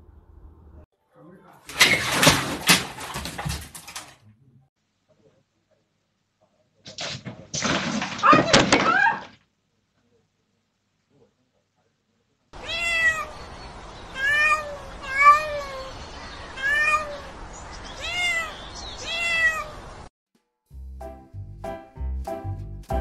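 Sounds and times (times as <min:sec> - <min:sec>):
kitten meowing: 0:12.6 - 0:13.4, 0:14.1 - 0:16.0, 0:16.6 - 0:17.3, 0:18.0 - 0:19.8
music with plucked beat: 0:20.7 - 0:23.0.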